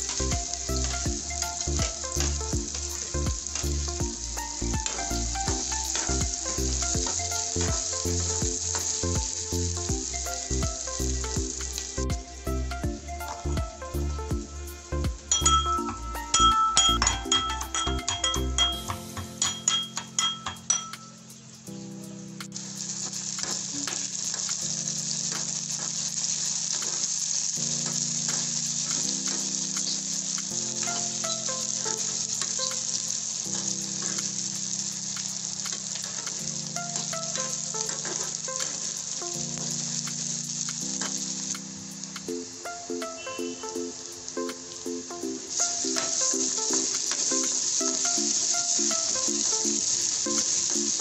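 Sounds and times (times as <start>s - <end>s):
onions sizzling in oil: 0.0s - 51.0s
pestle clinking in metal mortar: 15.3s - 21.0s.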